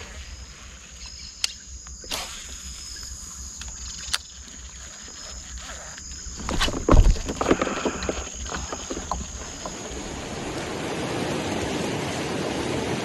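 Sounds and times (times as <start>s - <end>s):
insects chirring: 0.0s - 10.8s
water noise: 1.8s - 13.0s
sharp clicks and knocks: 5.9s - 10.0s
low wind rumble: 6.1s - 13.0s.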